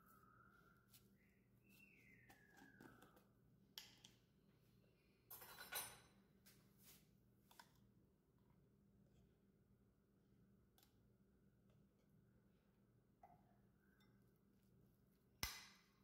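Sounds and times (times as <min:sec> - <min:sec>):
faint falling whistle: 0:00.0 - 0:03.2.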